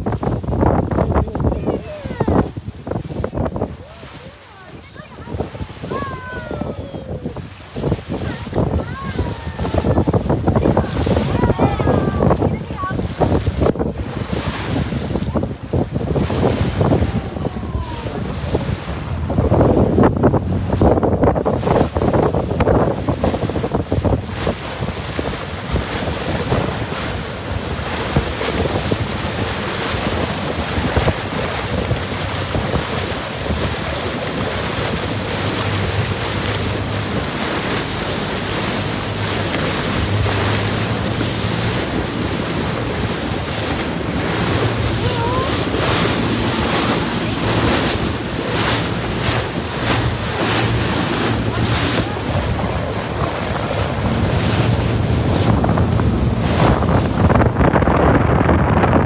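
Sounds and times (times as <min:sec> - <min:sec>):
low engine hum: 0:00.0 - 0:59.0
waves rushing along boat hull: 0:00.0 - 0:59.0
wind buffeting microphone: 0:00.0 - 0:59.0.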